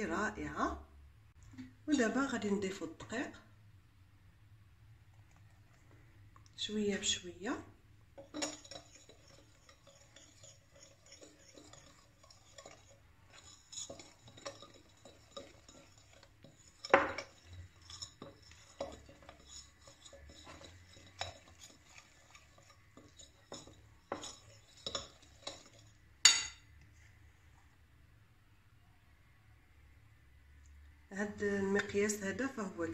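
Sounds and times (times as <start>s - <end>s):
metal beater scraping glass bowl: 8.2s - 26.6s.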